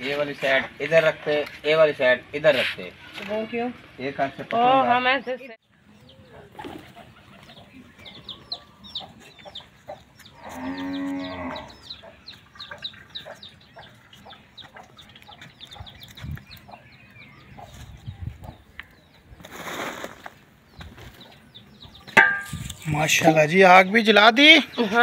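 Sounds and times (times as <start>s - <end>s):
small birds chirping: 0.0s - 25.0s
cow mooing: 10.4s - 11.8s.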